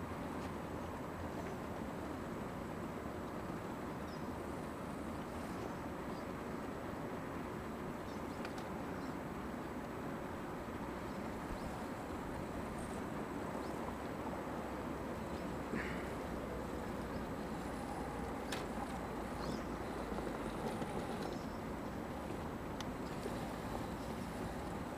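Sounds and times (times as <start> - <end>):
faint clicks: 8.1 - 9.2, 16.7 - 24.9
electric motors droning: 15.3 - 24.9.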